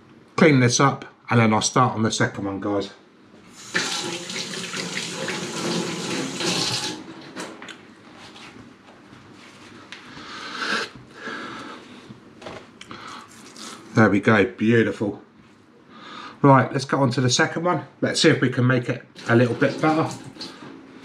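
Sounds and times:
hands washing under water: 3.6s - 7.0s, 19.2s - 20.8s.

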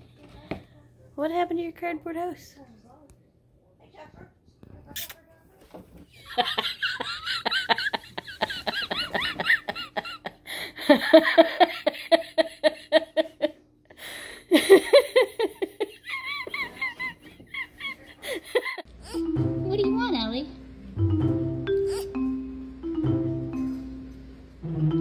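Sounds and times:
person laughing hard: 6.3s - 13.6s, 14.5s - 18.9s.

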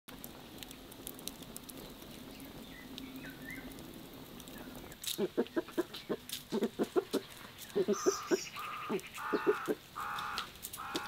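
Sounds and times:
wood fire crackling and popping: 0.1s - 11.0s
small bird chirping: 1.8s - 3.8s, 4.5s - 11.0s
chickens clucking: 5.1s - 11.0s.

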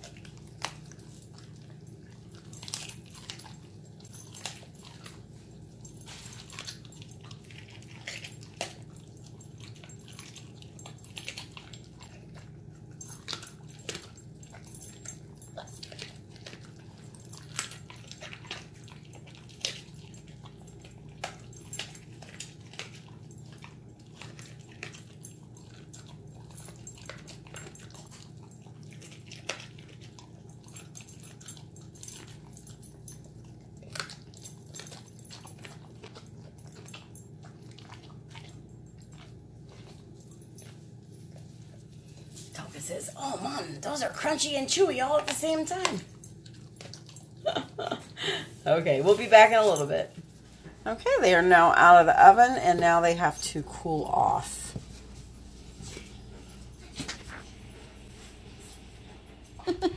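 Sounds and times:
dog chewing: 0.0s - 59.9s
low hum: 50.1s - 59.9s.

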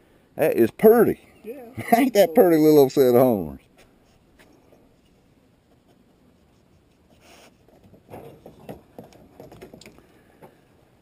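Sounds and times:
soft hiss: 0.0s - 7.8s
faint rustling and scratching: 3.4s - 10.1s.

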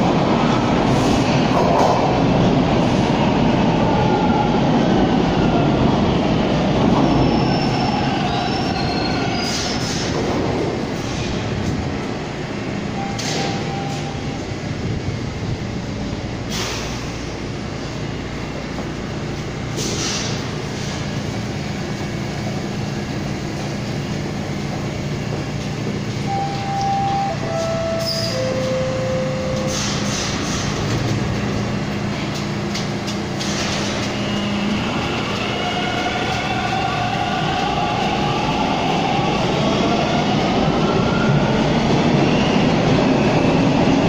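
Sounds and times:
standing train humming: 9.2s - 44.0s.

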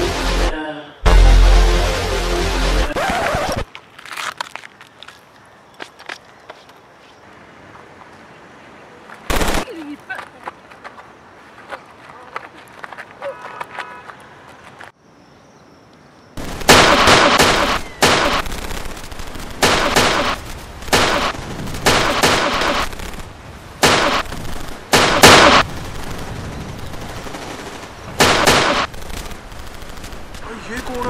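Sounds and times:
gunshots with echo: 16.4s - 18.9s, 19.5s - 23.0s, 23.8s - 26.2s, 27.2s - 28.9s.

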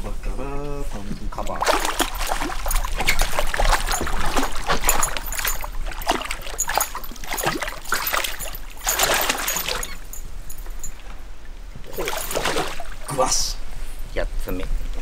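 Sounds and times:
fish splashing water: 1.5s - 10.2s, 11.8s - 13.2s.

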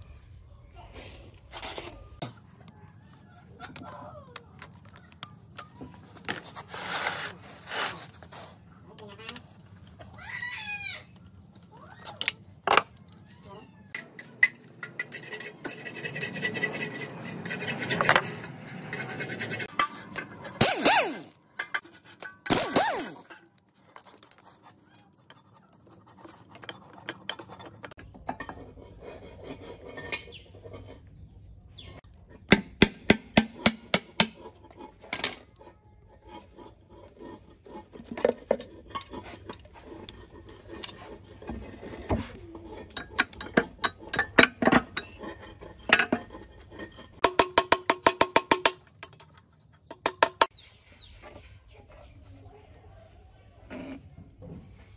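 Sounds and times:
metal parts and tools clinking: 17.6s - 32.6s, 33.6s - 50.5s.

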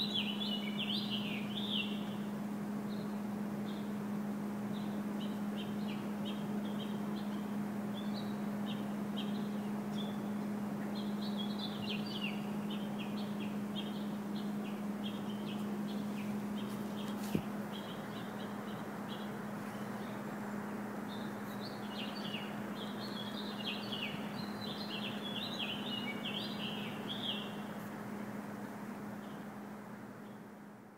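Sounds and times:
songbirds chirping: 0.0s - 30.9s
steady low hum: 0.0s - 30.9s.

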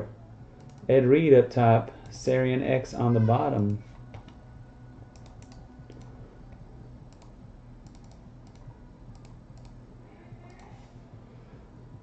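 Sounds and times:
steady low hum: 0.0s - 12.0s
keyboard clicks: 0.6s - 0.8s, 3.6s - 4.4s, 5.1s - 6.1s, 7.1s - 9.8s
computer mouse clicks: 0.6s - 0.9s, 3.6s - 4.4s, 5.1s - 6.1s, 7.1s - 9.8s.

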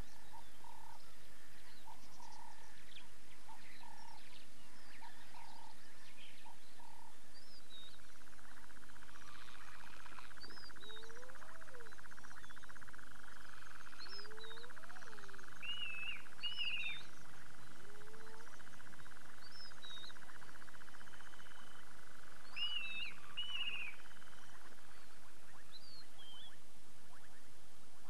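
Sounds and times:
birds whistling: 14.0s - 17.3s, 22.4s - 27.5s.

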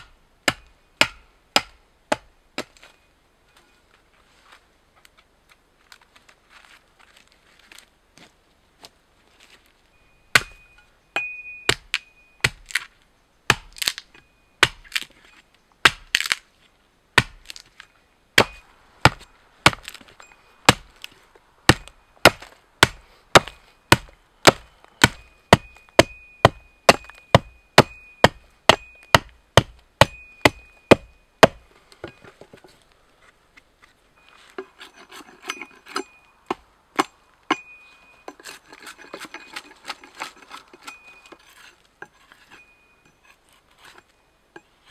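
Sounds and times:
axe chopping into a log: 0.0s - 2.8s, 10.4s - 10.6s, 11.7s - 12.9s, 13.5s - 14.0s, 14.6s - 15.1s, 15.8s - 16.4s, 17.2s - 17.7s, 18.4s - 20.1s, 20.7s - 20.9s, 21.7s - 31.6s
axe scraping and shaving wood: 13.5s - 16.5s, 17.2s - 17.8s, 18.4s - 37.1s, 38.3s - 44.9s.

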